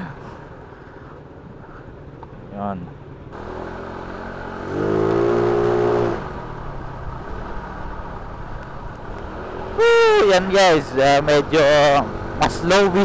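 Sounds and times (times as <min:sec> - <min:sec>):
scooter engine revving: 0:03.4 - 0:07.6.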